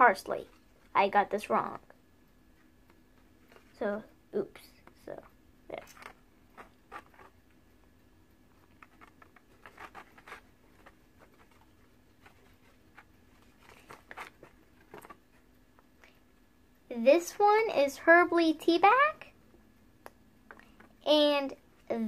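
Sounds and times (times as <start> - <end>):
packaging rustling: 8.6 - 15.3.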